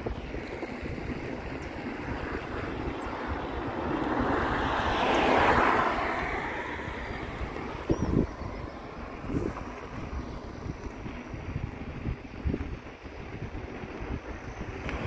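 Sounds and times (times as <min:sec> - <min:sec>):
wind noise on microphone: 0:00.0 - 0:15.0
car passing by: 0:00.4 - 0:10.9.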